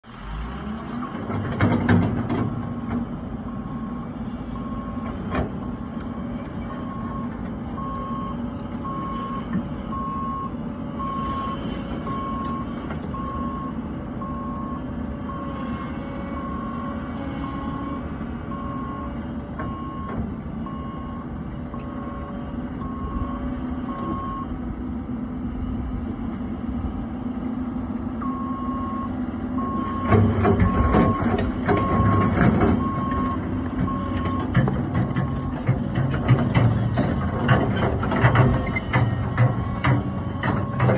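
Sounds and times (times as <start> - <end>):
excavator diesel engine: 0.0 - 40.9
travel alarm beeping: 5.6 - 15.5, 18.5 - 20.1, 21.8 - 24.5, 28.2 - 37.5
machine clunk: 30.0 - 40.9.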